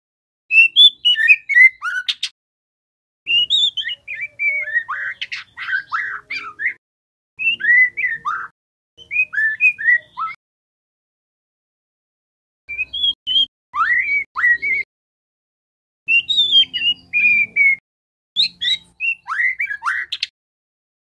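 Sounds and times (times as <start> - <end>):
bird singing whistles and chatter: 0.5 - 2.3, 3.3 - 6.8, 7.4 - 10.4, 12.7 - 14.9, 16.1 - 17.8, 18.4 - 20.3.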